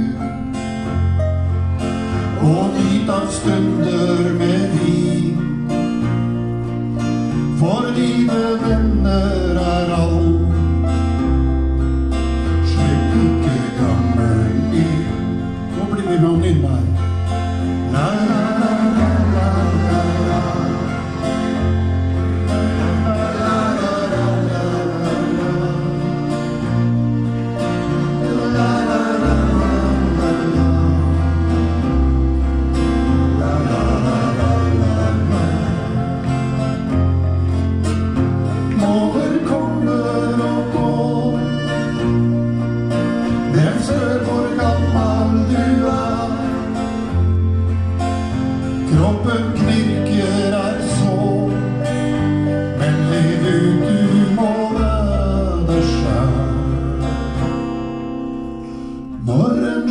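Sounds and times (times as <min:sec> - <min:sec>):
man singing: 0:00.0 - 0:00.6, 0:02.2 - 0:05.8, 0:07.5 - 0:10.8, 0:12.5 - 0:21.6, 0:22.4 - 0:26.6, 0:27.8 - 0:37.0, 0:38.6 - 0:42.2, 0:43.4 - 0:47.3, 0:48.8 - 0:52.0, 0:52.6 - 0:57.1, 0:59.2 - 0:59.9
acoustic guitar strumming: 0:00.0 - 0:59.9
ukulele strumming: 0:16.8 - 0:59.9.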